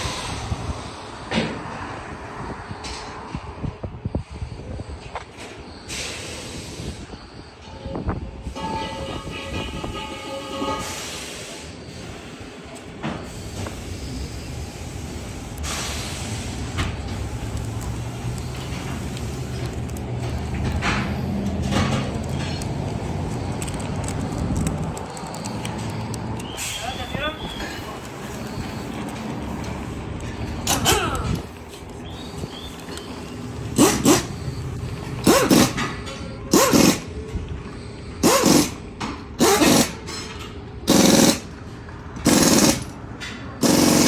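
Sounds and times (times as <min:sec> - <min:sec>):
compressed air hisses: 0:05.9 - 0:07.1, 0:10.8 - 0:12.5, 0:13.2 - 0:19.6.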